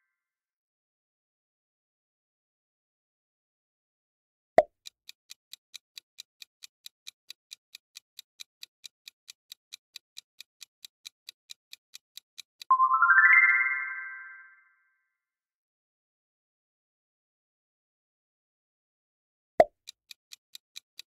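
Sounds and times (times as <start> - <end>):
clock-like ticking: 4.6 - 12.7, 19.6 - 21.0
rising chime: 12.7 - 14.6.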